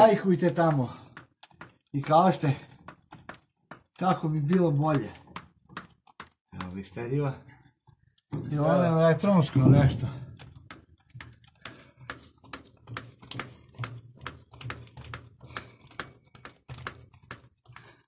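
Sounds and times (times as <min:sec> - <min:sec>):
grease gun clicking: 0:10.2 - 0:18.0.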